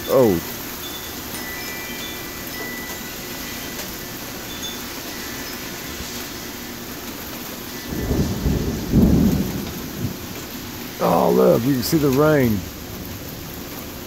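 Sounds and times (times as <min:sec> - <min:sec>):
rain hissing: 0:00.0 - 0:14.0
wind: 0:00.0 - 0:14.0
low rumble of thunder: 0:07.8 - 0:11.0.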